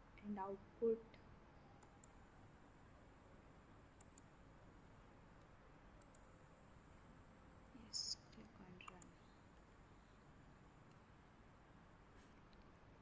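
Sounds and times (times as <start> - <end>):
computer mouse clicks: 1.8 - 2.2, 4.0 - 4.3, 5.4 - 6.3, 8.3 - 9.2
faint hiss: 6.1 - 10.9.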